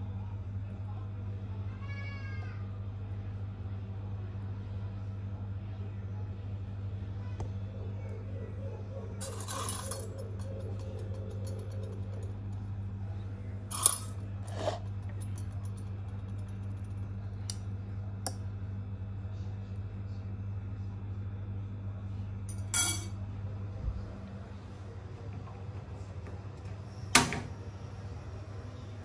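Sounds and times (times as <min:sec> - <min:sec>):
steady low hum: 0:02.6 - 0:29.0
metal fork clinking on ceramic bowl: 0:22.5 - 0:23.1.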